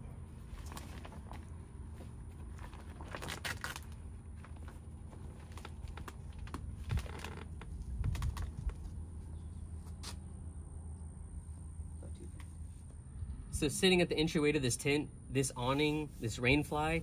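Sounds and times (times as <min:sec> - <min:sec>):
nylon tent fly rustling: 0:00.0 - 0:10.2
low background rumble: 0:00.0 - 0:17.0.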